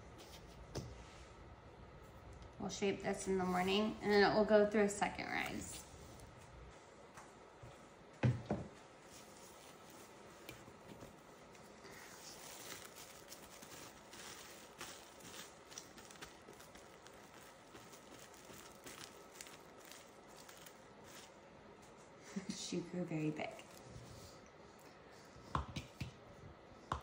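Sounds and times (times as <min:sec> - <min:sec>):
plastic wrap crinkling: 0:09.1 - 0:22.0, 0:23.4 - 0:23.9.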